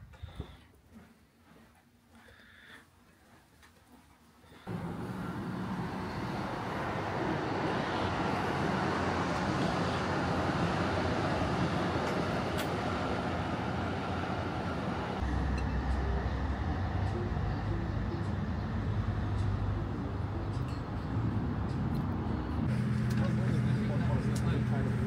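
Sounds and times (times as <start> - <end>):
vehicle noise: 4.6 - 25.0.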